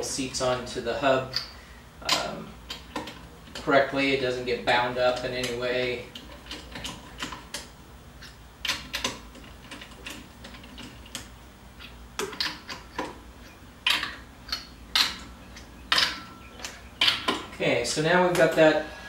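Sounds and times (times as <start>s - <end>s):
metallic clicks of lug nuts: 1.3s - 3.7s, 5.1s - 17.6s.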